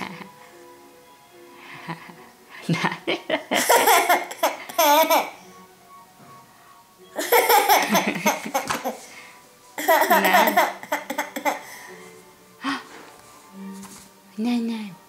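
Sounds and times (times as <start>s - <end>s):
faint music: 0.0s - 15.0s
toddler laughing: 3.6s - 5.4s, 7.2s - 9.1s, 9.8s - 11.7s.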